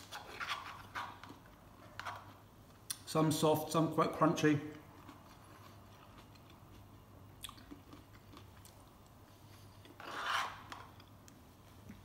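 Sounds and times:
person chewing: 0:04.7 - 0:12.0.

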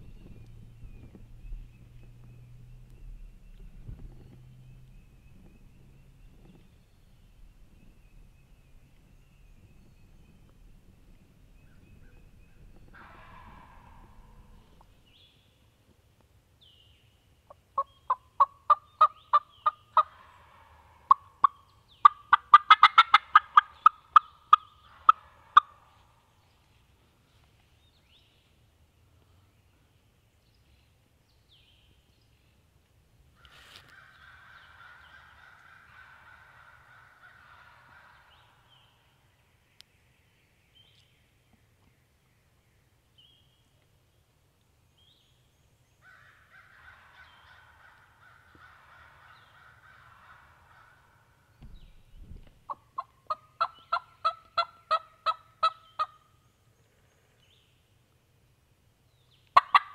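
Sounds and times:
distant faint turkey calls: 0:00.0 - 0:15.2, 0:17.5 - 0:26.6, 0:33.4 - 0:39.3, 0:46.0 - 0:57.5, 0:59.4 - 0:59.9
turkey yelps: 0:12.9 - 0:14.8, 0:17.8 - 0:25.9, 0:34.0 - 0:38.6, 0:52.7 - 0:56.2, 0:59.6 - 0:59.9
low thump: 0:51.6 - 0:52.6.

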